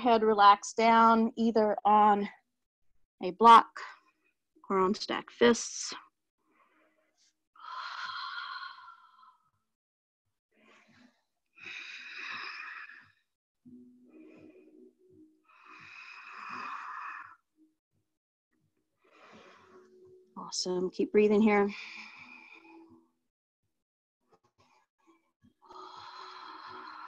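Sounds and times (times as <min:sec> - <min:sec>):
slow deep breathing: 0:06.4 - 0:09.6, 0:10.6 - 0:17.5, 0:19.0 - 0:20.0, 0:21.7 - 0:23.0, 0:24.6 - 0:27.0.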